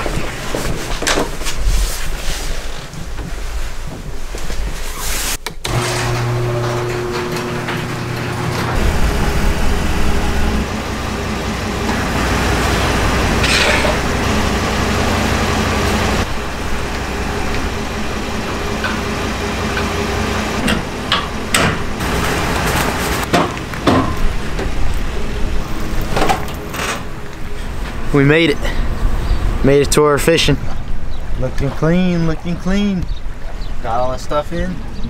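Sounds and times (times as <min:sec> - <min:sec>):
truck engine idling: 0:06.5 - 0:29.7.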